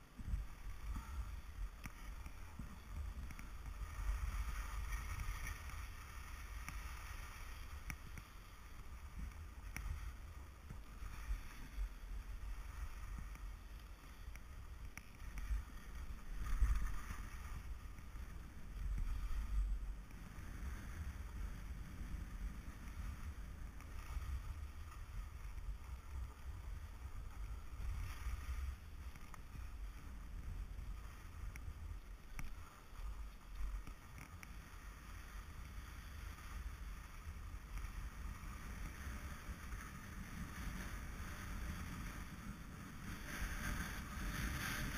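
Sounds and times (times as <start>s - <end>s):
skis scraping over snow: 0.0s - 44.9s.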